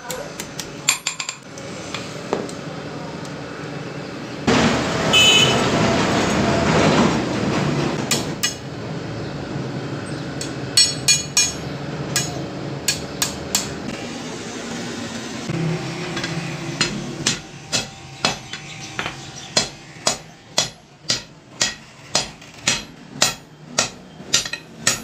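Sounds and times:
loud rushing noise: 4.4 - 10.0
hammer tapping on anvil: 10.4 - 13.7, 16.2 - 25.0.

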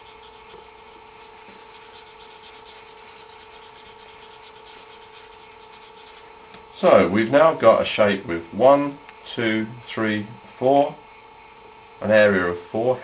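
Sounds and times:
marker pen rubbing on paper: 0.0 - 6.4
faint hum: 0.0 - 13.0.

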